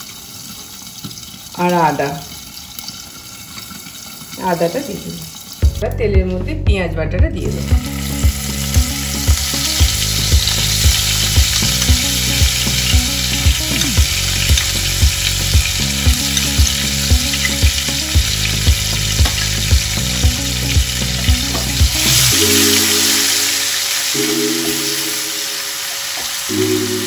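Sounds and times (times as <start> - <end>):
onion paste sizzling in oil: 0.0 - 5.8, 7.7 - 24.2
background music with steady beat: 5.6 - 27.0.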